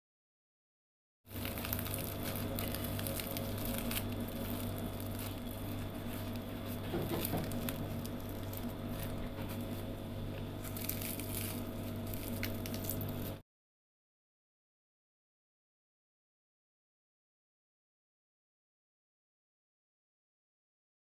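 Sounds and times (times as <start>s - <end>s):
fried dough crackling and tearing: 1.3s - 13.4s
steady low hum: 1.3s - 13.4s.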